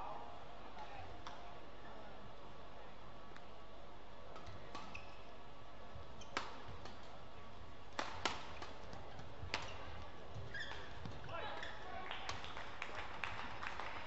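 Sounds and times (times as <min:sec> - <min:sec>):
rackets hitting shuttlecock: 0:08.0 - 0:11.3.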